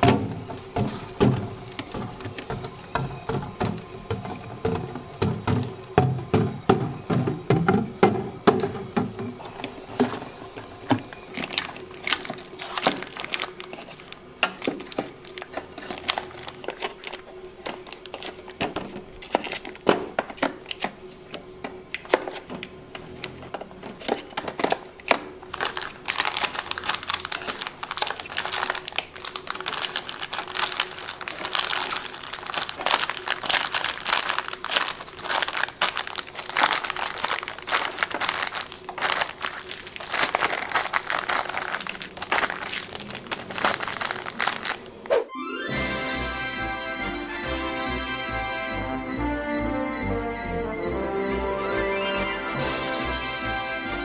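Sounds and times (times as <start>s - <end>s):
packaging crinkling: 0.0s - 6.0s, 9.5s - 21.3s, 23.2s - 45.1s
plastic knocking on plastic: 0.0s - 9.4s.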